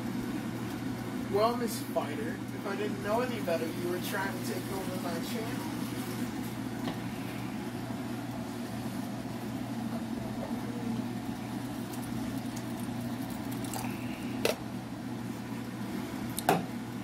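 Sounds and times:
broth simmering and bubbling: 0:00.0 - 0:17.0
low constant hum: 0:00.0 - 0:17.0.

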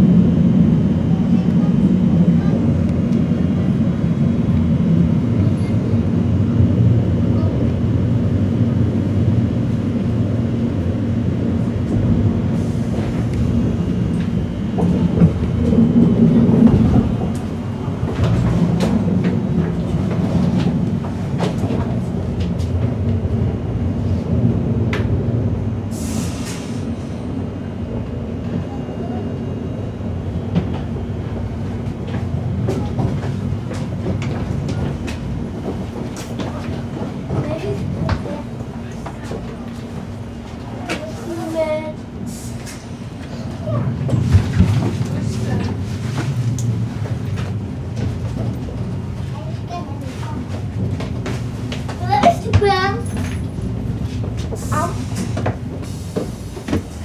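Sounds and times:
train running gear rumble: 0:00.0 - 0:57.0.

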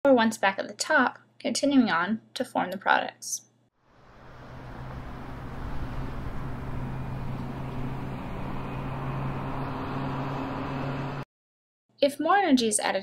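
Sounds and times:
car engine running: 0:03.9 - 0:11.2.

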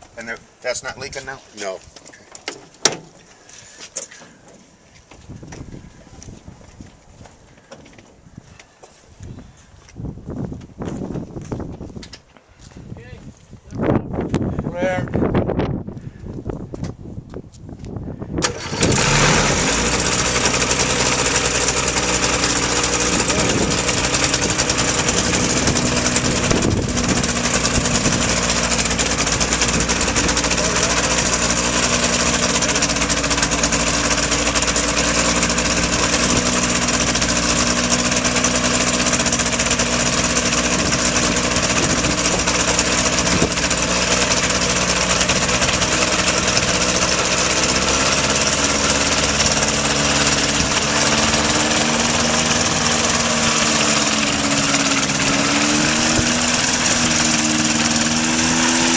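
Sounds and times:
light aircraft engine and propeller: 0:18.4 - 0:58.9.

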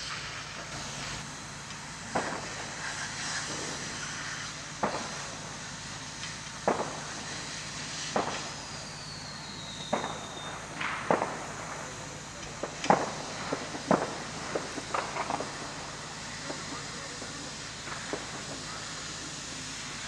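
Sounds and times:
hose jet spraying water: 0:00.0 - 0:20.0
sharp cracks and pops: 0:01.7 - 0:03.8, 0:08.1 - 0:08.6, 0:09.9 - 0:11.8, 0:12.4 - 0:15.8, 0:17.8 - 0:19.0.

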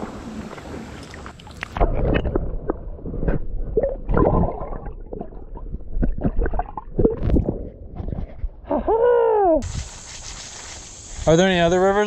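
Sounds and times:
knocks and clicks underwater: 0:01.0 - 0:08.6.

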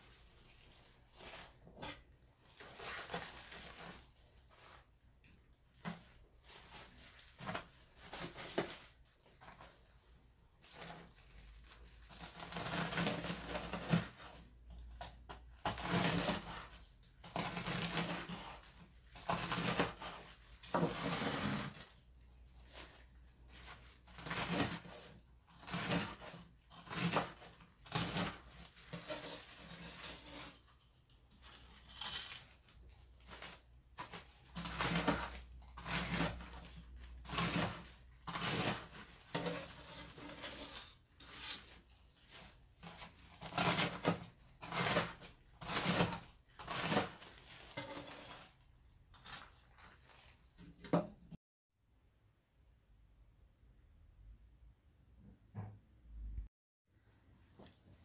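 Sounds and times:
knife crunching through fried crust: 0:33.4 - 0:48.6.

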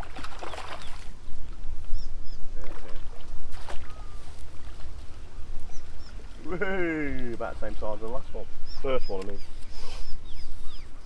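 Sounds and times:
fish splashing in water: 0:00.0 - 0:01.2, 0:02.6 - 0:06.5.

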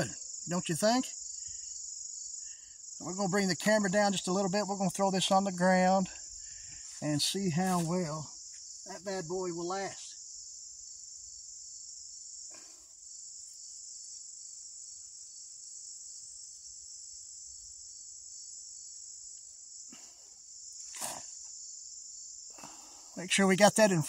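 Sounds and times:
insects chirping: 0:00.0 - 0:24.0.

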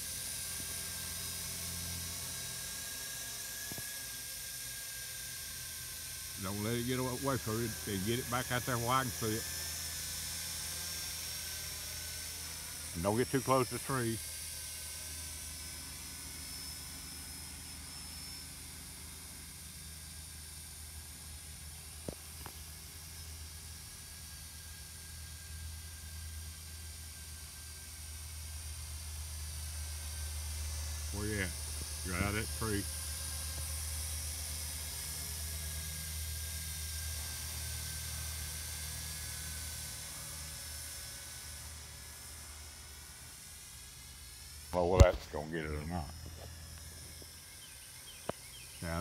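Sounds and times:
drone motors humming: 0:00.0 - 0:49.0.

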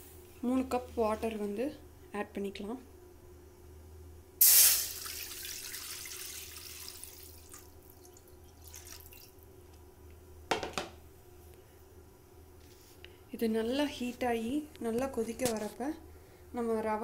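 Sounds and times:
water pouring into metal pan: 0:04.4 - 0:09.3.

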